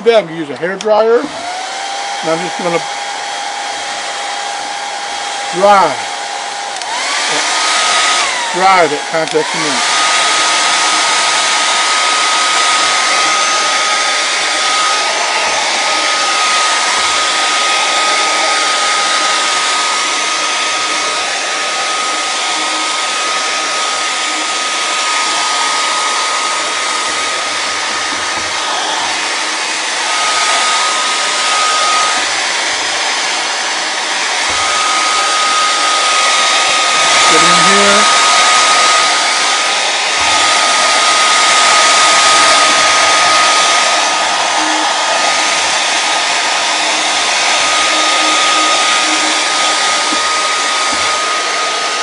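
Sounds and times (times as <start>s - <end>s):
hair dryer blowing: 0.0s - 52.0s.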